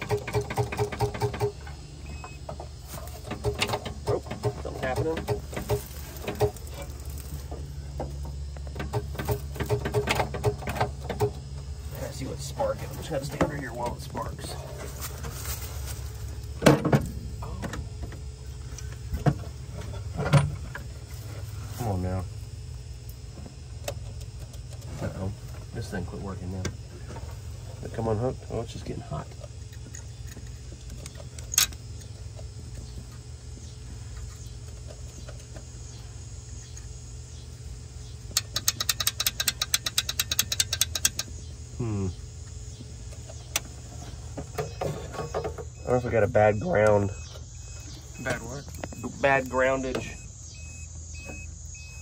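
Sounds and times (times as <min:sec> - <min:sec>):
starter solenoid clicking: 0:00.0 - 0:02.3, 0:38.3 - 0:41.3
low hum: 0:00.0 - 0:52.0.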